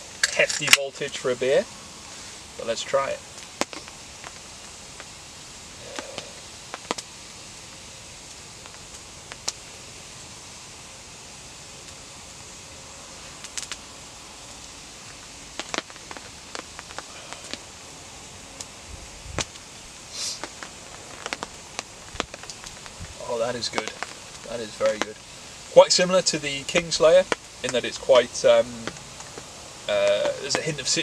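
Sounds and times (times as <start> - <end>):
short hiss: 0.0 - 10.0, 18.4 - 31.0
rain on a tarp: 0.0 - 10.4, 13.1 - 31.0
sharp ticks and crackles: 0.1 - 10.0, 13.2 - 13.9, 14.6 - 31.0.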